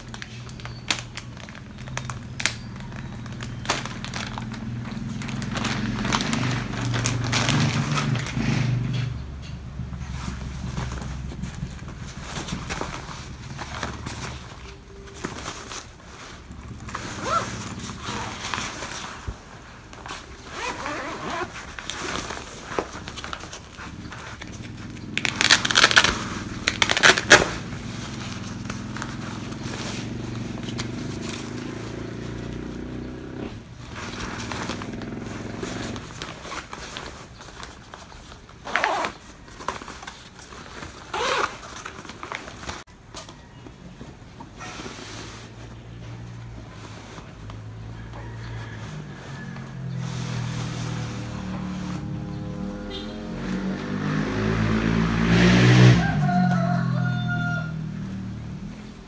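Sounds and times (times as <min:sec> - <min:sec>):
fabric bags rustling: 0:00.0 - 0:08.8, 0:09.7 - 0:54.1
zipper opening: 0:15.8 - 0:19.3, 0:20.1 - 0:37.0, 0:38.6 - 0:39.8, 0:40.4 - 0:42.7.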